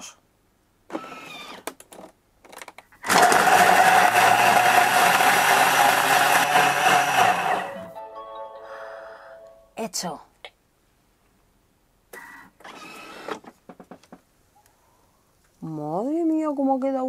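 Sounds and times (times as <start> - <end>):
blender whirring: 3.0 - 7.9.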